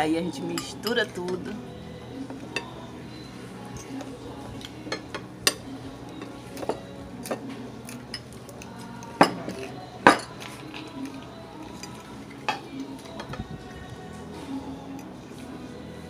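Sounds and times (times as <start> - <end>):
cutlery clinking on glass plate: 6.2 - 8.3, 9.2 - 10.4.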